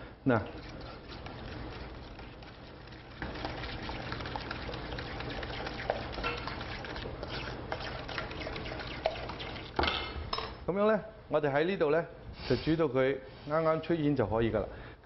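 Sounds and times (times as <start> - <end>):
whisk clicking in metal bowl: 0.6 - 9.8.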